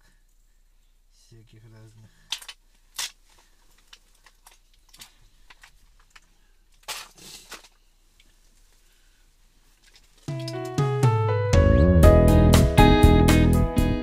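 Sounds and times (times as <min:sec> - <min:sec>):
clothing rustles: 0:02.7 - 0:10.3.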